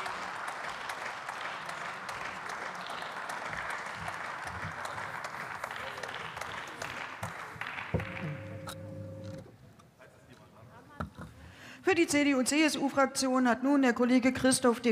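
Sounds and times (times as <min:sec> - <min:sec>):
crowd applauding: 0:00.0 - 0:09.5.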